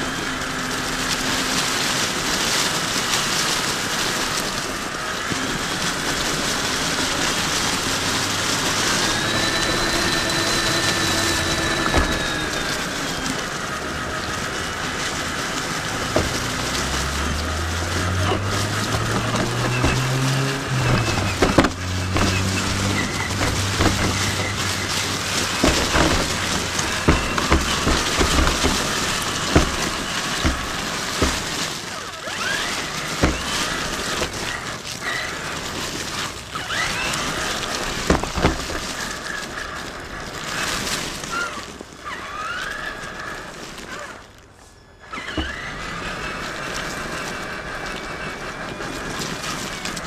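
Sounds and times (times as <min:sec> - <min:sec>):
electric motor whine: 0:00.0 - 0:44.3, 0:45.0 - 0:50.0
tyres crunching on gravel: 0:00.0 - 0:50.0
sharp knocks on rocks: 0:33.2 - 0:34.4.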